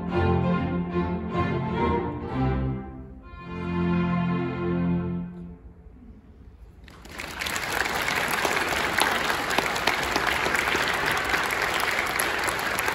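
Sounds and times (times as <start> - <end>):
audience applauding: 6.8 - 12.9.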